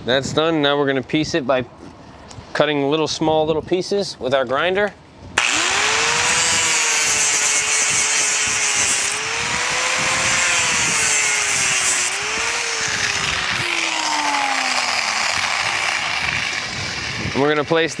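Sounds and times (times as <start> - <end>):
angle grinder cutting plastic: 5.4 - 17.7.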